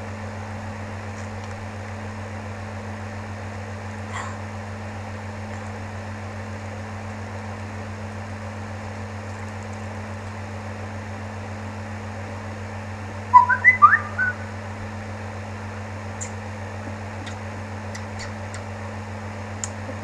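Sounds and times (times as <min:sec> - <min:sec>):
electrical hum and hiss: 0:00.0 - 0:20.0
whistled chirps: 0:13.3 - 0:14.6.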